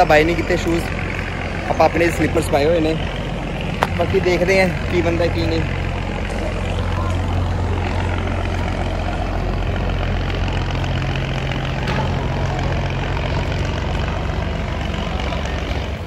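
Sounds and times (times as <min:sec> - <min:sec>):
large engine idling: 0:00.0 - 0:16.0.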